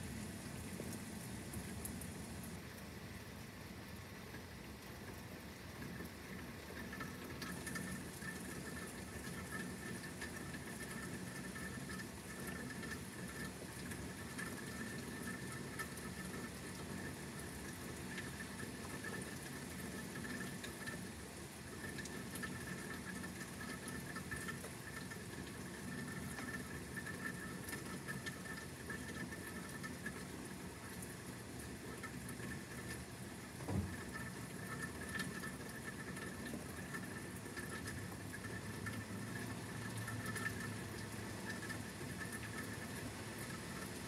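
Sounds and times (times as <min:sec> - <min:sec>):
rain pattering: 0:00.0 - 0:44.0
low thump: 0:33.7 - 0:33.9.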